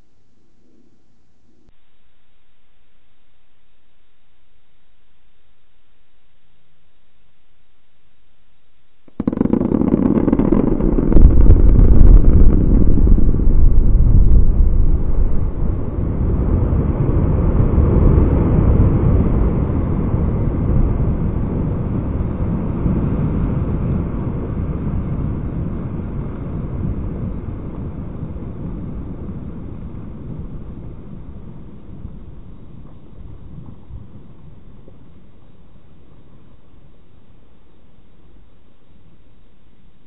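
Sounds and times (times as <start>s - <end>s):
deep rumble: 9.0s - 36.8s
loud blast bang: 9.2s - 16.2s.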